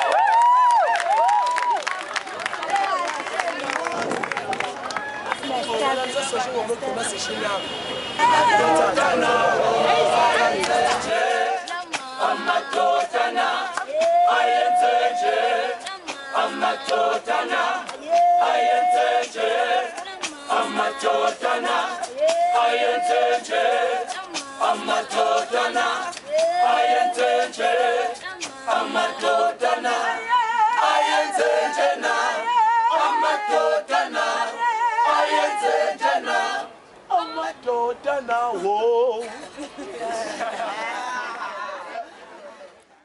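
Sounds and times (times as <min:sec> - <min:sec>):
choir singing in harmony: 0:08.2 - 0:36.7.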